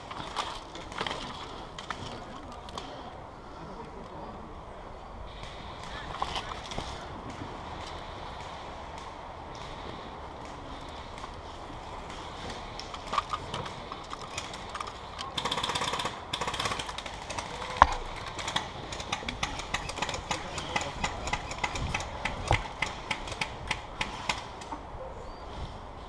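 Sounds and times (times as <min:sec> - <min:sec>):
sharp clicks and knocks: 0:12.8 - 0:24.8
airsoft gun firing bursts: 0:15.4 - 0:24.5.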